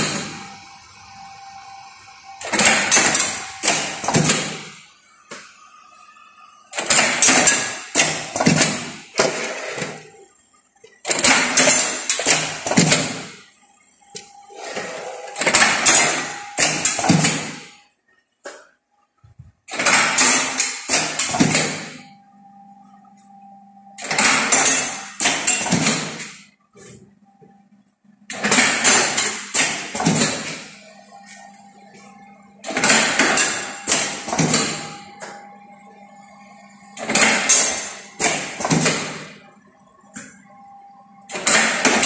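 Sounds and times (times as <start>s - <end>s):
casting machine mechanical bursts: 2.0s - 4.9s.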